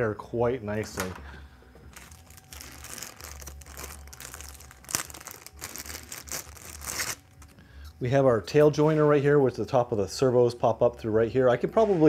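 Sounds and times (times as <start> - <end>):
plastic packaging crinkling: 1.9 - 7.6.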